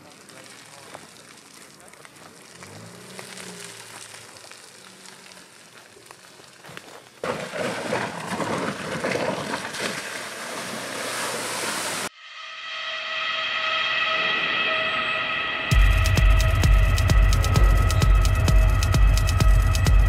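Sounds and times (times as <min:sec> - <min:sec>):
rushing water noise: 0:00.0 - 0:06.6, 0:07.2 - 0:12.1
music: 0:12.2 - 0:20.0
faint engine running: 0:15.7 - 0:20.0.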